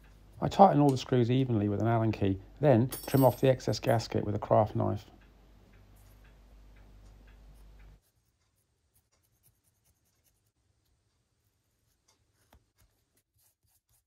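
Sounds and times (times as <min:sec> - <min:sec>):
craft knife scratching: 0:11.8 - 0:14.0.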